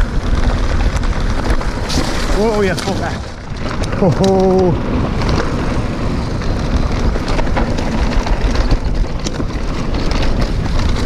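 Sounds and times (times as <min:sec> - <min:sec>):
bike clicks and rattles: 0:00.0 - 0:11.0
tyres rumbling on dirt: 0:00.0 - 0:11.0
wind buffeting microphone: 0:00.0 - 0:11.0.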